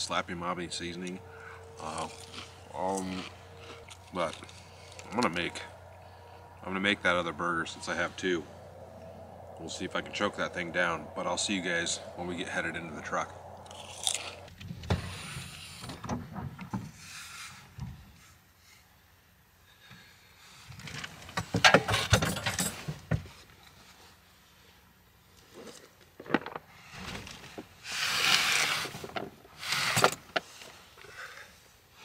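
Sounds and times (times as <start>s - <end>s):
camping gear knocking and scraping: 20.7s - 23.4s, 25.4s - 27.8s.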